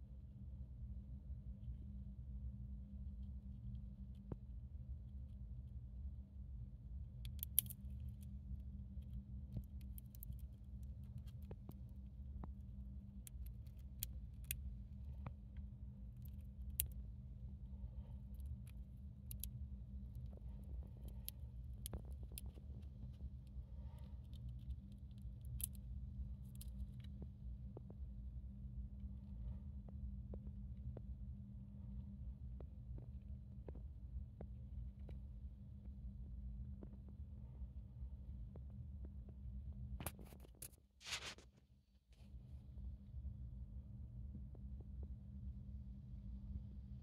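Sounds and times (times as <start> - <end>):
steady low hum: 0.0 - 47.0
hamster nibbling seed: 7.2 - 17.1, 17.8 - 27.1.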